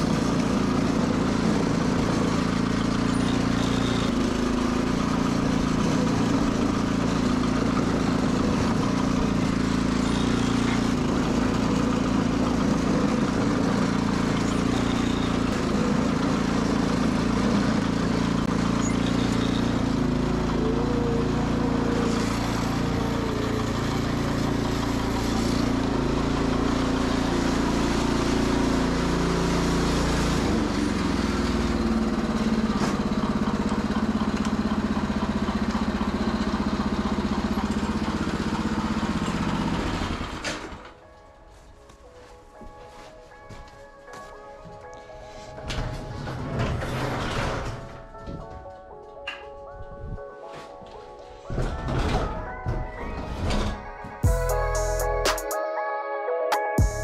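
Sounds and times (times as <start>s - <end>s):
garden tractor engine running: 0.0s - 41.3s, 53.7s - 55.4s, 56.8s - 57.0s.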